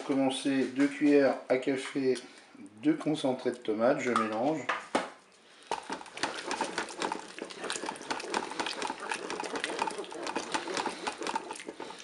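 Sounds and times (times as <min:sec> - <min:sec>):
wooden spoon scraping a bowl: 0:05.7 - 0:12.0.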